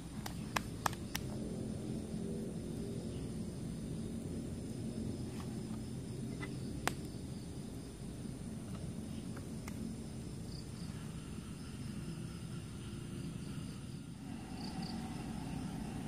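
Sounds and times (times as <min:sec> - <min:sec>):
insects chirping: 0:00.0 - 0:16.0
campfire crackling and popping: 0:00.1 - 0:01.7, 0:02.6 - 0:10.0
low rumble: 0:01.2 - 0:16.0.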